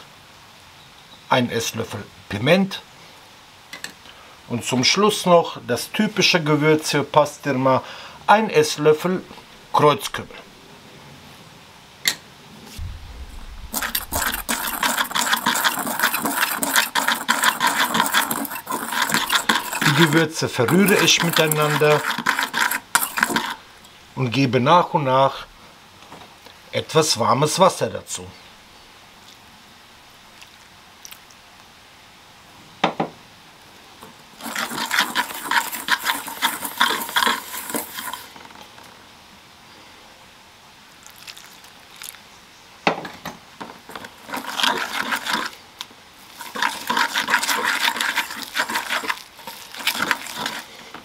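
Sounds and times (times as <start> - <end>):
wire whisk scratching a bowl: 13.8 - 23.6, 34.4 - 38.4, 43.9 - 45.6, 46.3 - 50.8.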